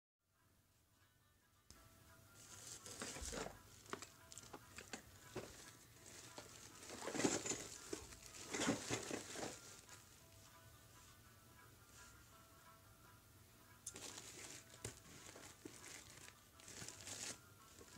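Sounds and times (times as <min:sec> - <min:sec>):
plastic mailer bag crinkling: 0:02.4 - 0:09.9, 0:13.9 - 0:17.9.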